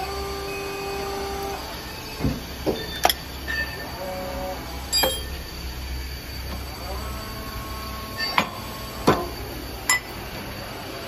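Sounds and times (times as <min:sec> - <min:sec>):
metal parts clinking: 0:05.0 - 0:05.4.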